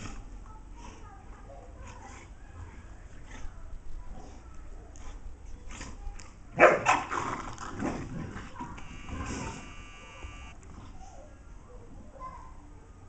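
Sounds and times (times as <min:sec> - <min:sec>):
dogs barking and growling: 0:06.5 - 0:09.7.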